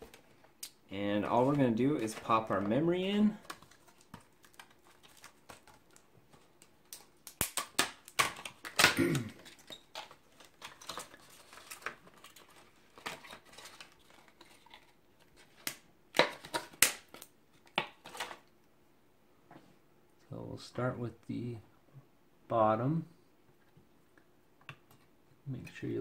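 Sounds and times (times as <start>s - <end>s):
plastic rustling: 1.2s - 15.6s
plastic snapping and crackling: 3.4s - 14.8s, 15.4s - 18.4s.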